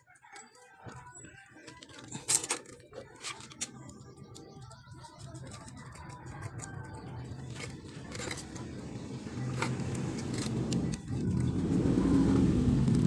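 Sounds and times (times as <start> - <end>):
screws and metal parts clicking: 1.6 - 8.7
low rumble: 8.8 - 13.0.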